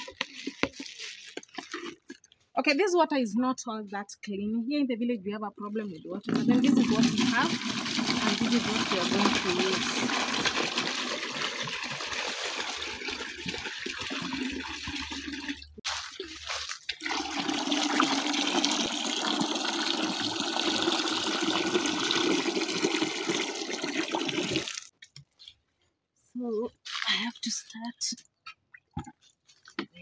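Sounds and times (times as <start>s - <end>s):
water pouring into plastic bucket: 0.0s - 2.2s, 6.2s - 24.9s.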